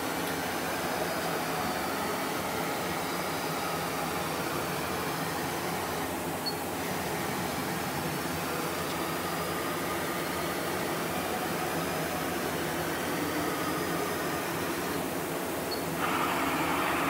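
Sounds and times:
machine whirring: 0.0 - 17.0.

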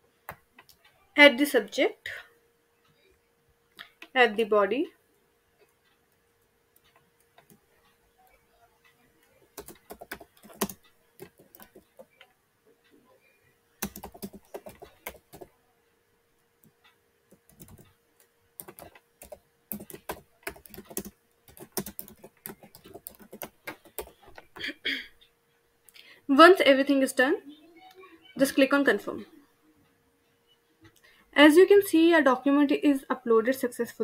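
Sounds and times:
typing on computer keyboard: 9.6 - 12.3, 13.8 - 15.5, 17.3 - 18.0, 18.6 - 24.6.

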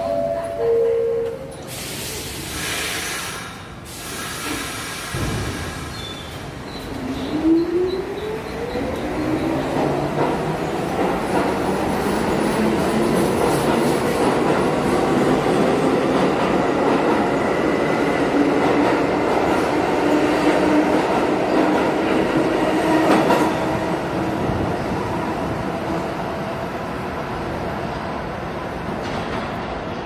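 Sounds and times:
subway train rumbling: 0.0 - 30.0.

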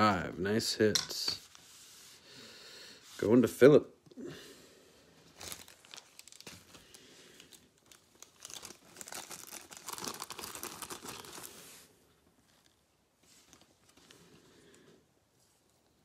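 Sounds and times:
plastic sleeve crinkling: 5.2 - 14.4.

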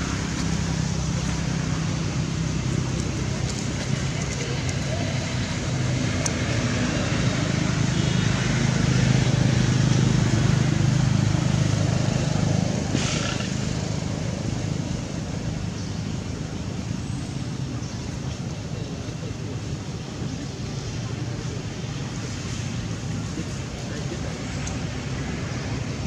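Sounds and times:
vehicle engine passing by: 0.0 - 15.7.

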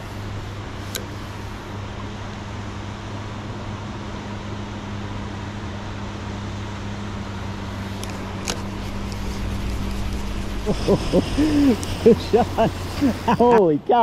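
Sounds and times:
low even hum: 0.0 - 14.0
fast river current rushing: 7.6 - 13.8.

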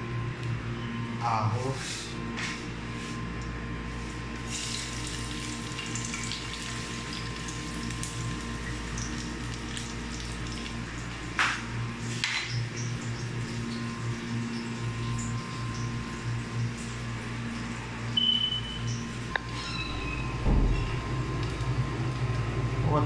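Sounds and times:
low hum: 0.0 - 23.0
garlic sizzling in oil: 4.4 - 11.2.

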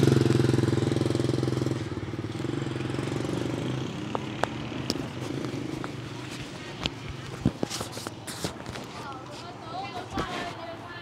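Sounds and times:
motorbike engine running: 0.0 - 7.2.

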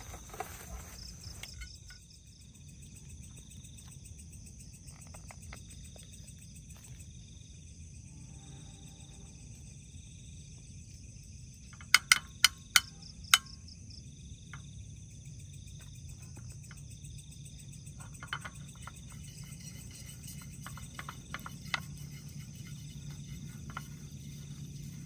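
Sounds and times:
frogs and insects chorus: 0.0 - 25.0
utensil tapping a frying pan: 11.8 - 13.5
utensil scraping a pan: 18.0 - 25.0.

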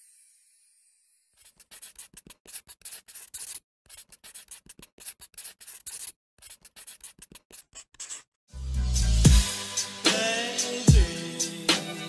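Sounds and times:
pen scratching on paper: 1.4 - 8.4.

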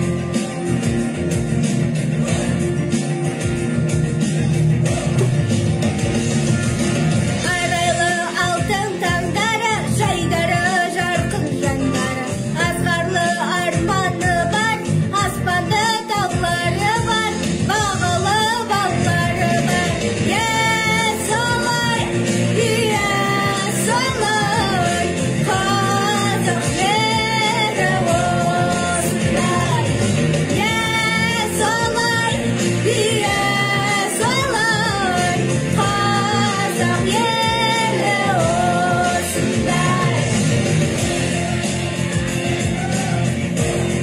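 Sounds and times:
band accompaniment: 0.0 - 44.0
person singing: 7.4 - 41.8.

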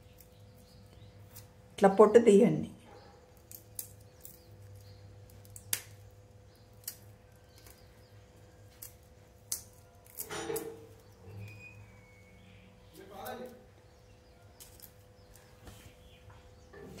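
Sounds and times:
garlic skin rustling: 3.3 - 12.2
garlic skin clicking off: 3.4 - 7.9.

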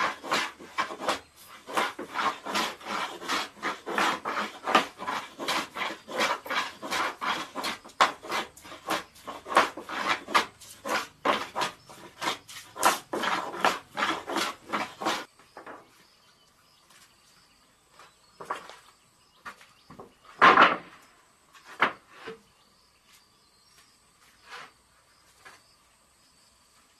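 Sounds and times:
hand plane shaving wood: 0.0 - 15.3.

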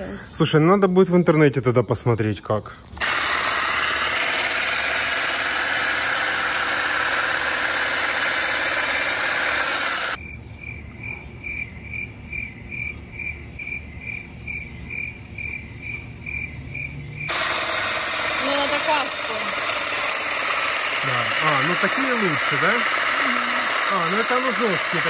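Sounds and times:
cricket chirping: 0.0 - 3.0, 10.2 - 17.3
hedge trimmer cutting shrub: 3.0 - 10.2, 17.3 - 25.0.

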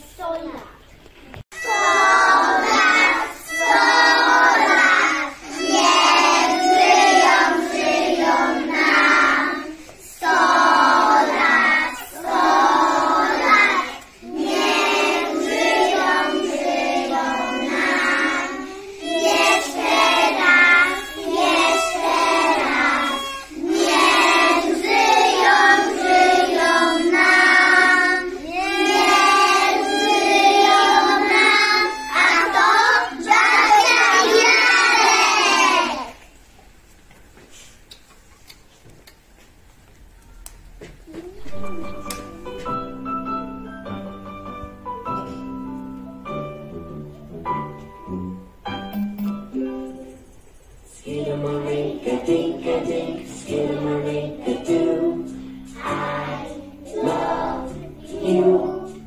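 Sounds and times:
children singing together: 1.6 - 36.3, 41.2 - 43.0, 50.9 - 59.0.

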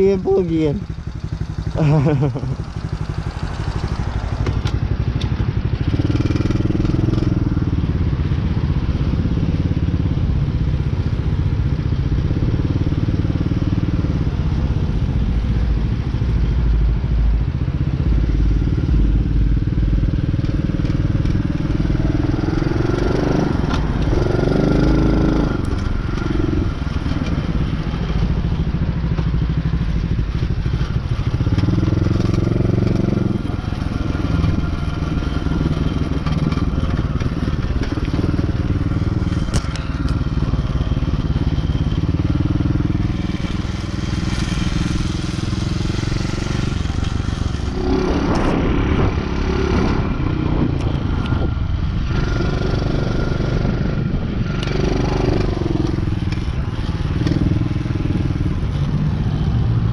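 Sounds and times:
dirt bike engine running: 0.0 - 15.3, 16.6 - 59.9
wind rumble on microphone: 13.7 - 59.9.

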